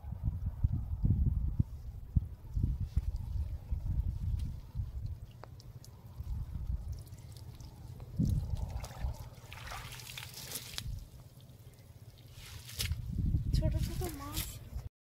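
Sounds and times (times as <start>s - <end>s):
steady low rumble: 0.0s - 9.9s, 10.7s - 14.9s
water splashing and trickling: 2.9s - 14.6s.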